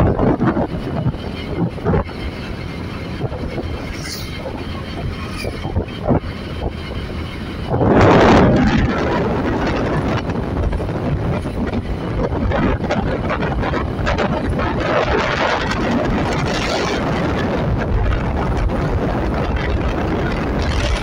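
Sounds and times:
vehicle engine and tyre noise: 0.0s - 21.0s
wind buffeting microphone: 0.0s - 21.0s.

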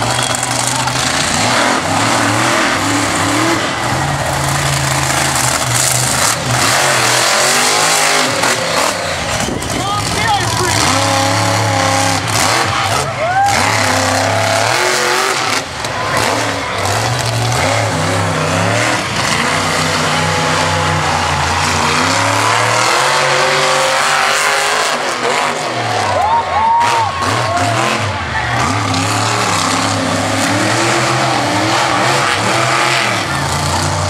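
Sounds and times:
monster truck engine revving: 0.0s - 34.0s.

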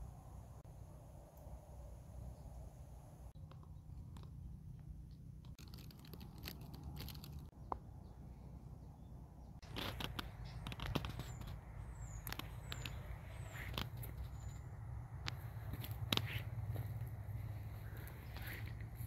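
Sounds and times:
soft clicks and rustles: 9.6s - 19.0s
bird chirps: 10.2s - 14.8s.

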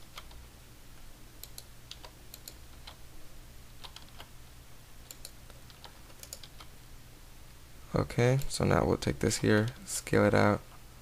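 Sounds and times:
faint low hum: 0.0s - 11.0s
computer keyboard keystrokes: 0.1s - 0.4s, 1.4s - 3.0s, 3.8s - 4.3s, 5.0s - 6.7s.

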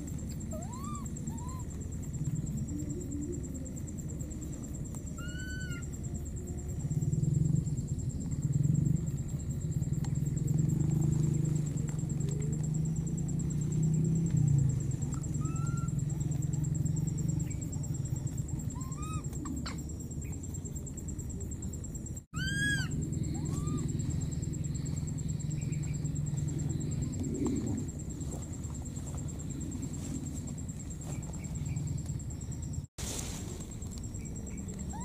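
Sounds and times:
baby monkey coo calls: 0.0s - 1.9s, 5.0s - 6.3s, 14.9s - 16.8s, 17.4s - 20.4s, 22.3s - 26.0s, 34.5s - 35.0s
steady low rumble: 0.0s - 35.0s.

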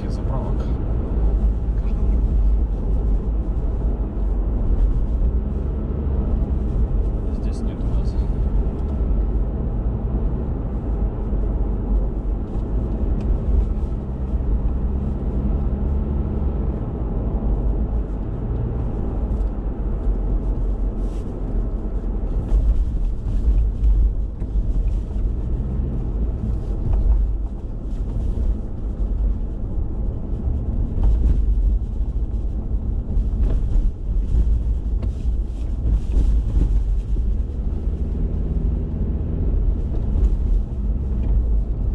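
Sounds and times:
car engine and tyre rumble: 0.0s - 41.9s
knocks and rattles in car: 21.8s - 41.9s.

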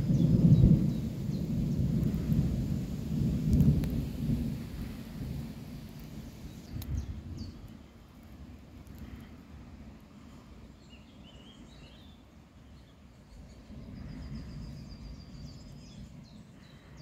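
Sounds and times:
thunder rolling: 0.0s - 7.3s.

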